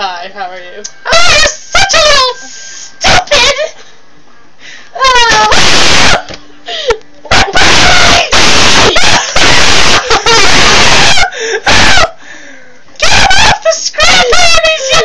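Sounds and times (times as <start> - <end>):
person screaming: 5.0 - 6.3, 7.3 - 12.1, 13.0 - 15.0.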